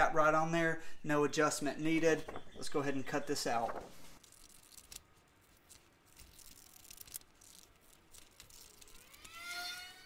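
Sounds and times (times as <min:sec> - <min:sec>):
paper rustling: 0:01.8 - 0:09.2.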